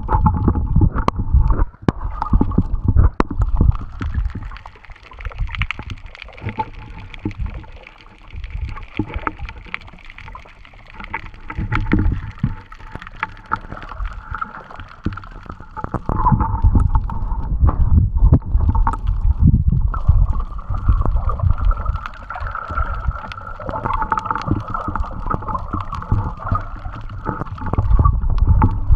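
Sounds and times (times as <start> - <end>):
water sloshing against camera: 0.0 - 28.9
muffled low rumbles: 16.1 - 22.1, 27.3 - 28.9.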